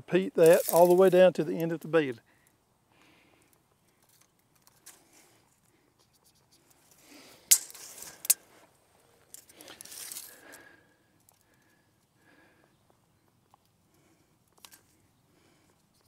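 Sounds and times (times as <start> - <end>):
tape measure blade rattling: 7.5 - 8.4.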